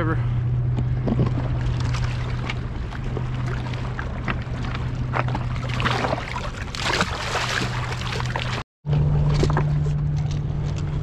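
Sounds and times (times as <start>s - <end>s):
low hum: 0.0s - 11.0s
water sloshing against rocks: 0.7s - 8.6s
fish splashing into water: 1.5s - 8.6s.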